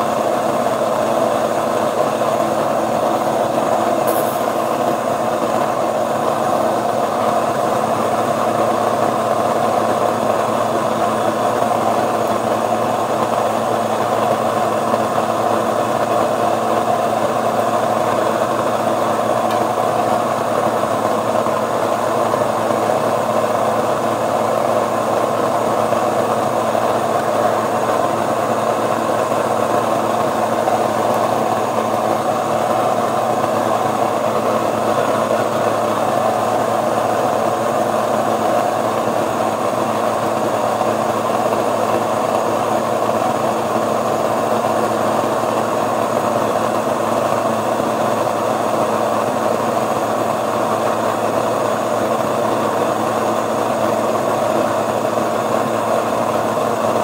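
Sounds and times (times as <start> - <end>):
stand mixer kneading dough: 0.0 - 57.0
grain mill grinding: 11.8 - 48.9.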